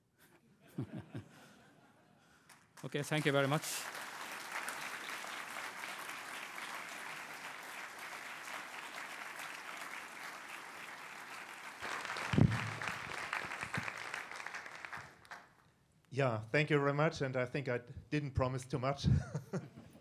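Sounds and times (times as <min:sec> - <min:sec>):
audience applauding: 0:02.5 - 0:15.6.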